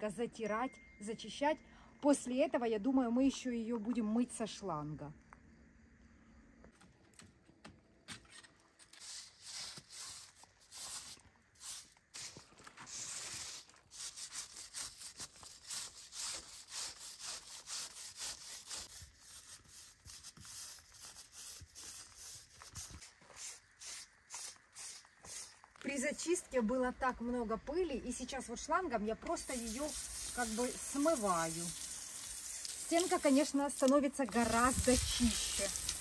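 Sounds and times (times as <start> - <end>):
putty knife scraping plaster: 8.1 - 25.5.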